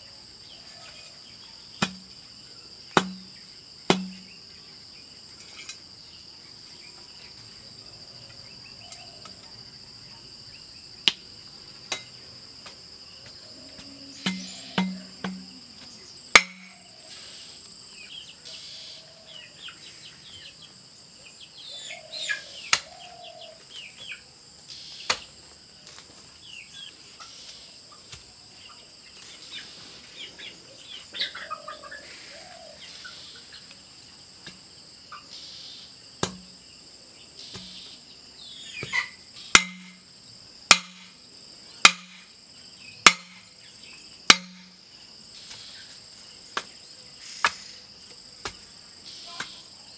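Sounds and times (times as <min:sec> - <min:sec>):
insects droning: 0:00.0 - 0:49.9
metal clanks on steel post: 0:14.3 - 0:15.5.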